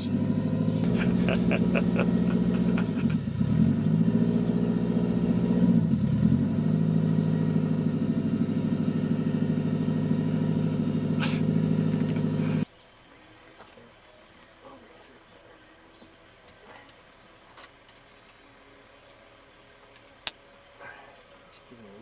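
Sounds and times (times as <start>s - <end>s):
car engine idling without muffler: 0.0s - 17.4s.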